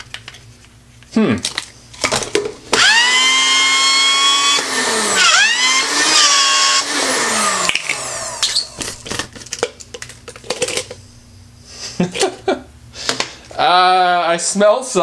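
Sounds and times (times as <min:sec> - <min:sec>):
blender motor whining: 0:02.7 - 0:09.3.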